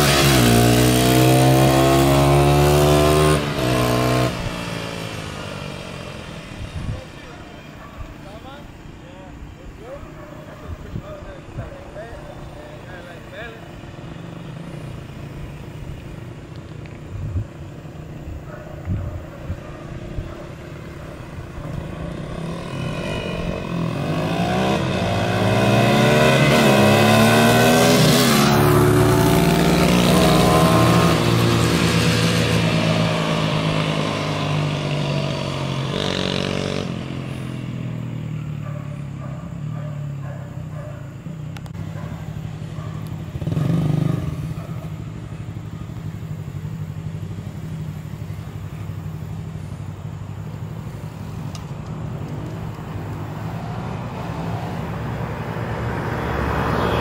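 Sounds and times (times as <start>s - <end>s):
dirt bike engine revving: 0.0s - 6.1s, 21.8s - 37.5s, 43.2s - 45.8s.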